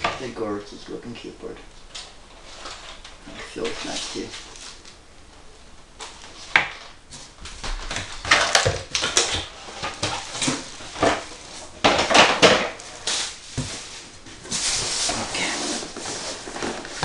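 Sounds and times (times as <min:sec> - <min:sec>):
cardboard rustling and scraping: 0:02.4 - 0:04.9, 0:06.0 - 0:17.0.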